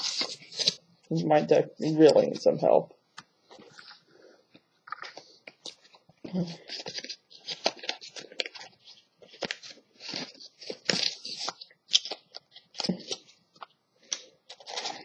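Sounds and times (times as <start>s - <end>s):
trading cards rustling: 0.0s - 0.8s, 4.8s - 15.0s.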